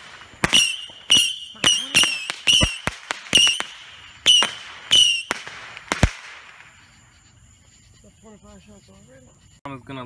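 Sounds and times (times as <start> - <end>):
firework launch pops: 0.0 - 6.8
firework whistles: 0.0 - 7.4.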